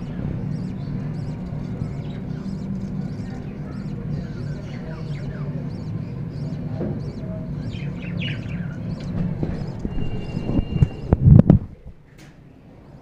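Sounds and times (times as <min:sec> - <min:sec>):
budgerigars chirping: 0:00.0 - 0:11.1
steady low hum: 0:00.0 - 0:13.0.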